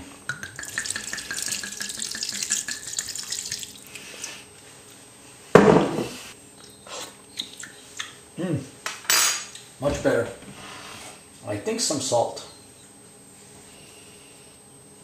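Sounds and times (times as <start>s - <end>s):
wine pouring into pot: 0.3s - 4.0s.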